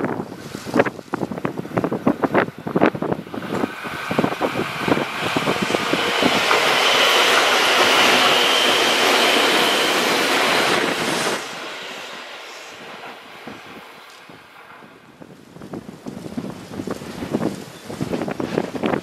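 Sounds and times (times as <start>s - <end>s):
train rushing past with whine: 1.7s - 17.4s
train wheels clattering: 3.4s - 15.3s.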